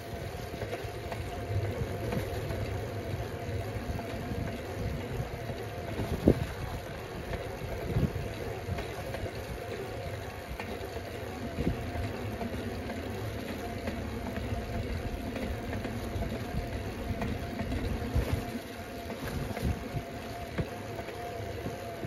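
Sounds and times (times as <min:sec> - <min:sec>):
bicycle tyre rumble: 0:00.0 - 0:22.0
wind noise on microphone: 0:01.5 - 0:09.6, 0:11.5 - 0:12.0, 0:16.1 - 0:20.7.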